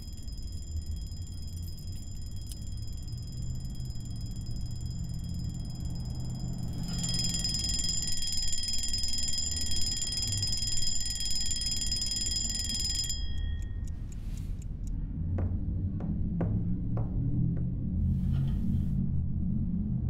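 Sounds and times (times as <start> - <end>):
bell ringing: 0.0 - 14.4.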